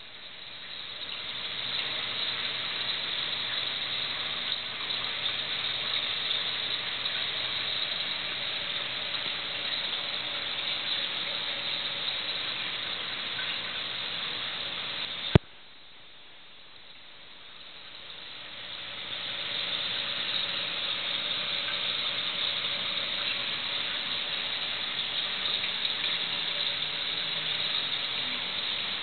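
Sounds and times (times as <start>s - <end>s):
water circulation hiss: 0.0s - 29.0s.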